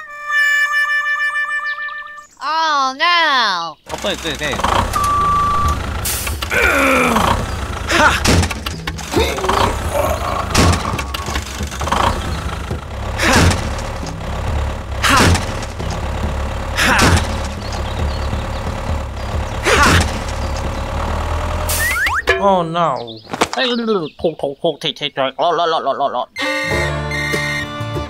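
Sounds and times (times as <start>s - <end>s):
tractor engine idling: 3.9s - 22.8s.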